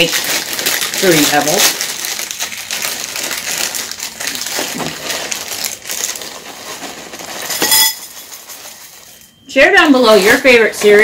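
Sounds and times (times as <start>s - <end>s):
cereal pattering into glass bowl: 0.0s - 11.0s.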